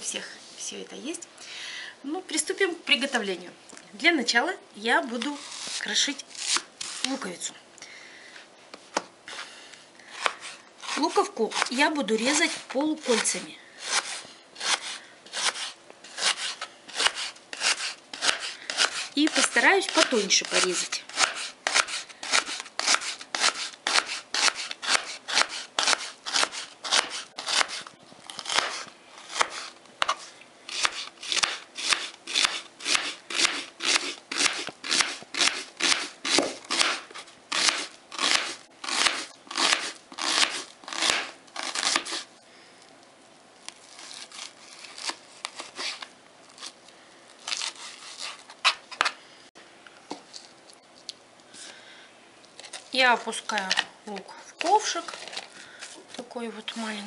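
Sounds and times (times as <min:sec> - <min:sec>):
knife chopping onion on board: 0:12.4 - 0:27.8, 0:28.4 - 0:42.2.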